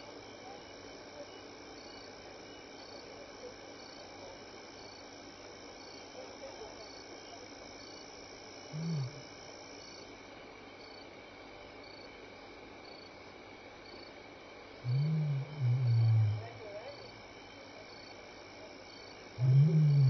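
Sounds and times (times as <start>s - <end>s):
crickets chirring: 0.0s - 20.0s
lion grunt: 8.7s - 9.2s, 14.8s - 16.6s, 19.4s - 20.0s.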